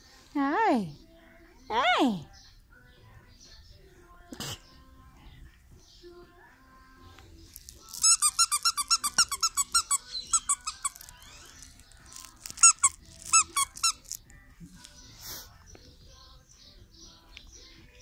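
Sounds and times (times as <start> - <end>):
squeaky plush toy squeaking: 7.8 - 14.2.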